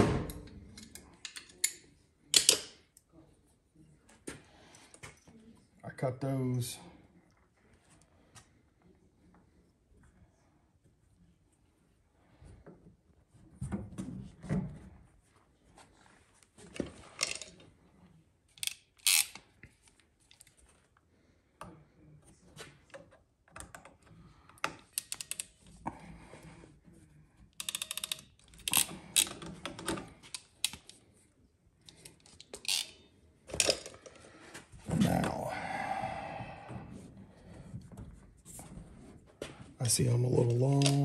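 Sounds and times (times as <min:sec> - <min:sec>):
fittings and tubing being handled: 0:16.5 - 0:17.7, 0:18.5 - 0:21.0, 0:27.6 - 0:31.2, 0:31.8 - 0:34.6, 0:40.4 - 0:41.0
crimp tool ratchet clicking: 0:18.6 - 0:19.4.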